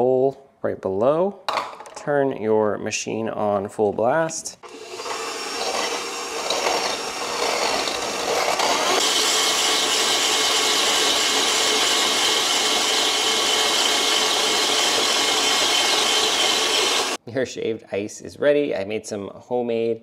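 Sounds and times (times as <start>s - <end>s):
blade grinding ice: 4.6s - 17.2s
stand mixer motor running: 4.6s - 17.2s.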